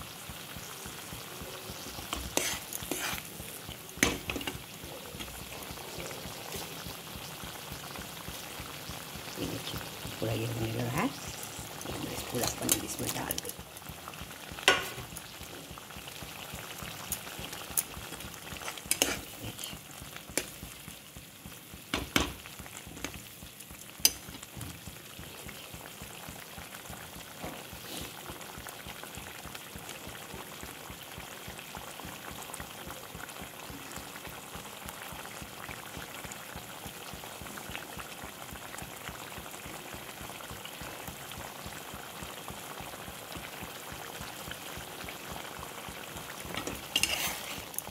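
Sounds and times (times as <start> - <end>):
gravy bubbling in a pan: 0.0 - 47.9
spatula knocking and scraping pan: 1.9 - 6.7, 14.6 - 15.1, 18.5 - 19.7, 21.9 - 23.2, 46.5 - 47.7.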